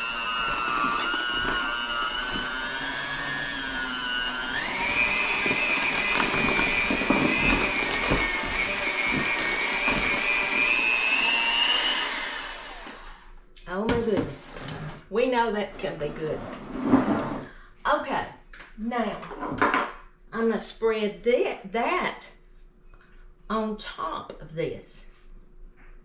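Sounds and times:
electric hand mixer whine: 0:00.0 - 0:13.4.

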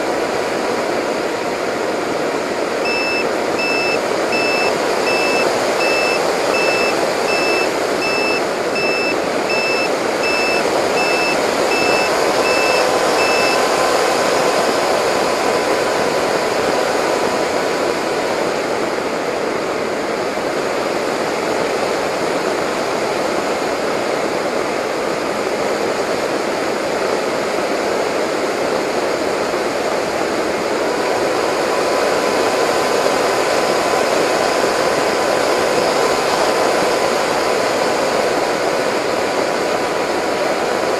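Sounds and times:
wind and propeller rush: 0:00.0 - 0:40.9
high-pitched beeping: 0:02.8 - 0:13.6.

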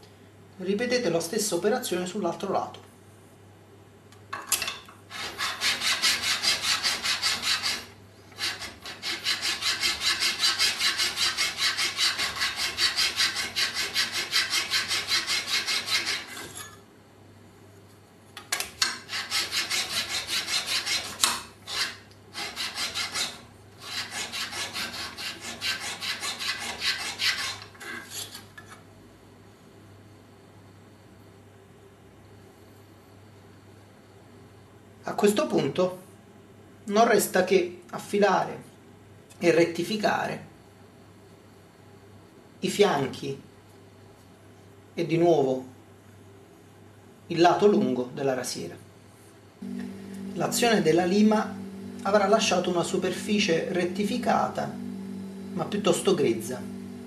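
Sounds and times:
scraper rasping on file: 0:05.1 - 0:16.6, 0:19.1 - 0:28.4.

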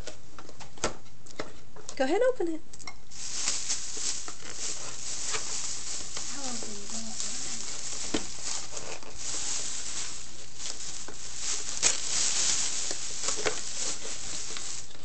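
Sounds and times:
plastic bag rustling: 0:03.0 - 0:15.0.

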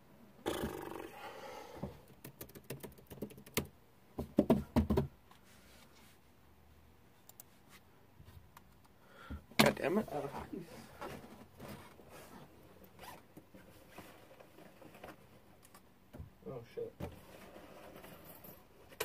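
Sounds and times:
knocks and taps on desk: 0:03.5 - 0:05.1.

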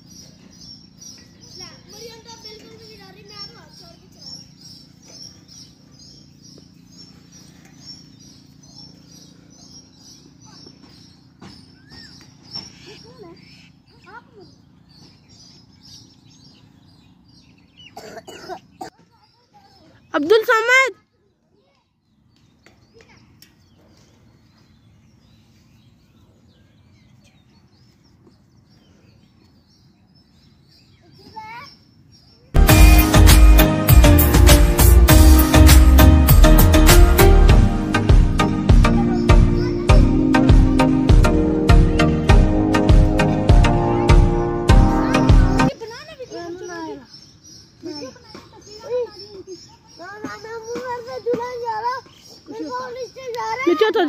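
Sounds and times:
bird chirping: 0:00.0 - 0:54.0
low hum: 0:32.6 - 0:45.7.

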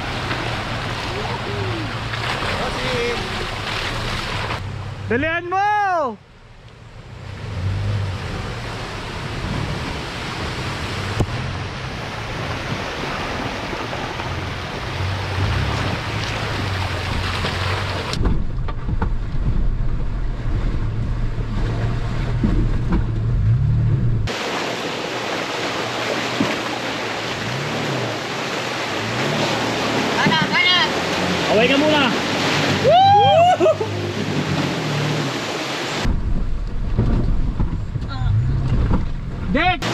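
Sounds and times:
flowing water rushing: 0:00.0 - 0:05.0, 0:06.6 - 0:18.3, 0:24.2 - 0:39.9.

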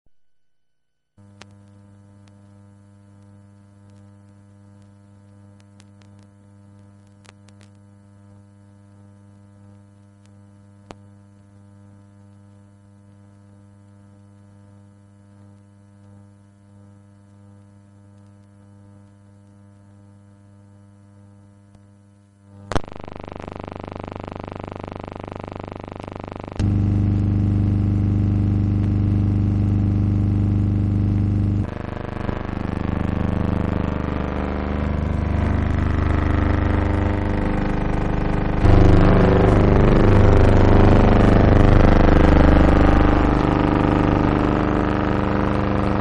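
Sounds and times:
electrical mains hum: 0:01.2 - 0:46.0
loud noise: 0:31.7 - 0:46.0.

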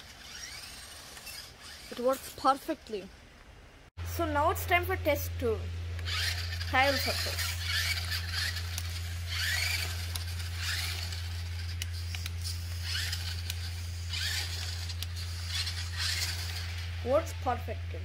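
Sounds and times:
electric motor whining: 0:00.0 - 0:02.3, 0:06.0 - 0:17.7
steady low hum: 0:00.0 - 0:18.0.

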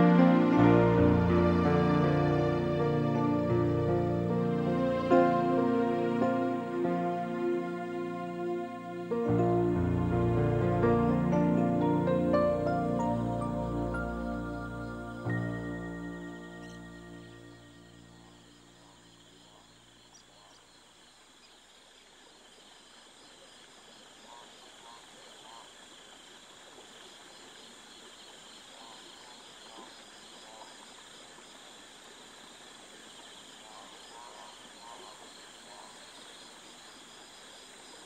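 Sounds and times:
music track: 0:00.0 - 0:19.0
faint background hiss: 0:00.0 - 0:38.0.

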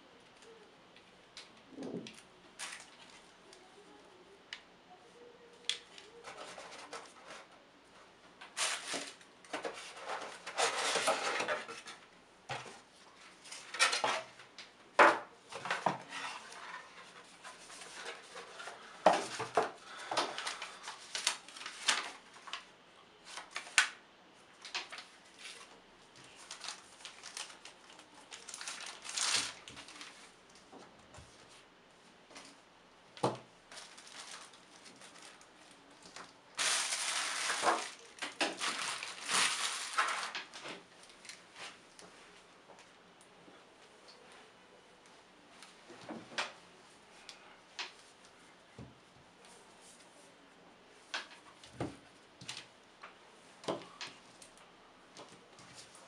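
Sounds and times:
plastic bag rustling: 0:01.7 - 0:03.3, 0:08.5 - 0:12.0, 0:15.7 - 0:23.8, 0:24.6 - 0:31.6, 0:33.7 - 0:42.0.

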